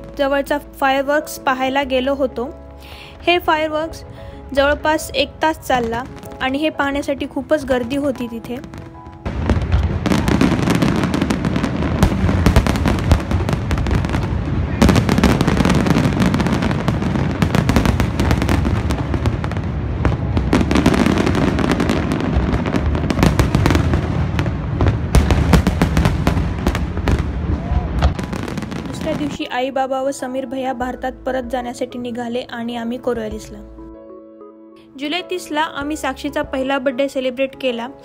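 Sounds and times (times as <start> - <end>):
fireworks bangs and crackles: 5.7 - 29.4.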